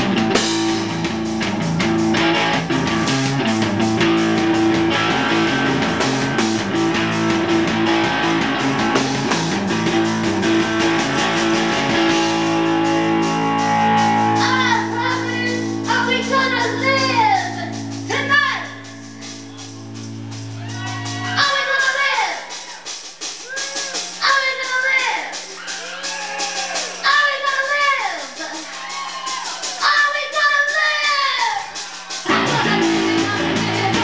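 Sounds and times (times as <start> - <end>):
distorted electric guitar: 0.0 - 21.7, 32.2 - 34.0
drums: 0.0 - 34.0
person's voice: 14.4 - 18.8.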